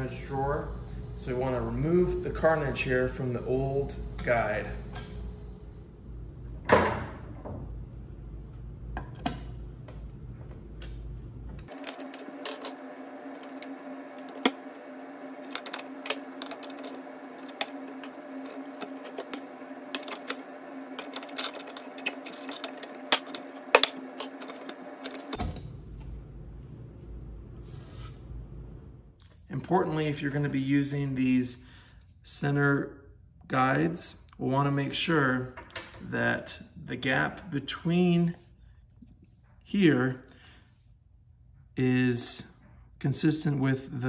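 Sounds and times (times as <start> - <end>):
steady hum: 0.0 - 31.8
hand tools prying and scraping: 11.6 - 25.6.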